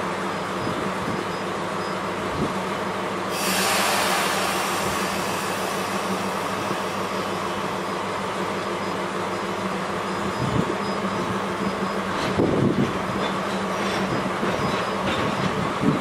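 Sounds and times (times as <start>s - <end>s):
locomotive idling hum: 0.0s - 16.0s
compressed air hiss: 3.3s - 8.2s.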